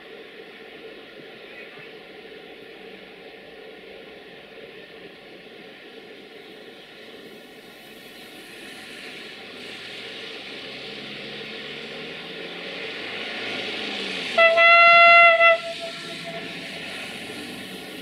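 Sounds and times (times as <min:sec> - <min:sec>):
electric locomotive approaching: 0:00.0 - 0:18.0
train horn: 0:14.4 - 0:17.2.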